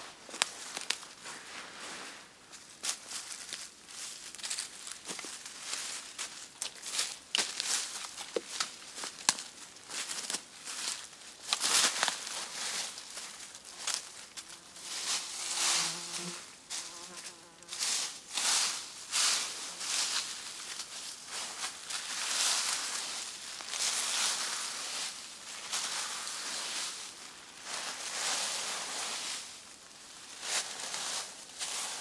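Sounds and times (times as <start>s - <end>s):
dry leaves rustling underfoot: 0.0s - 32.0s
insect buzzing faintly: 13.7s - 17.8s.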